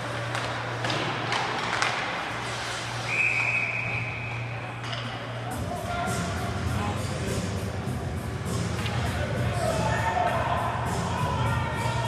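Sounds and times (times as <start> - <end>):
sticks and puck knocking on ice: 0.2 - 2.3
referee's whistle blast: 3.1 - 4.4.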